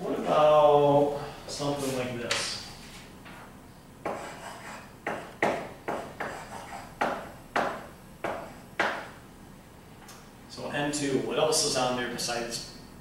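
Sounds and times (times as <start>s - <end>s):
chalk strokes on blackboard: 4.0s - 7.3s.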